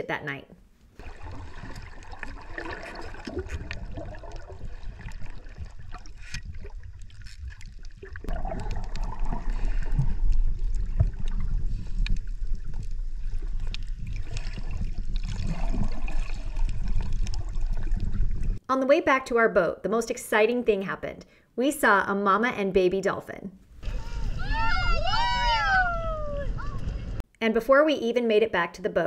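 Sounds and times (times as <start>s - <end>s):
water sloshing and splashing: 0.9s - 18.6s.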